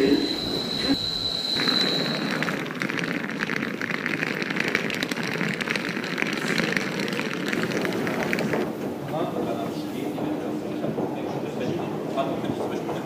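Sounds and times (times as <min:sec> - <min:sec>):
high thin tone: 0:00.0 - 0:02.6.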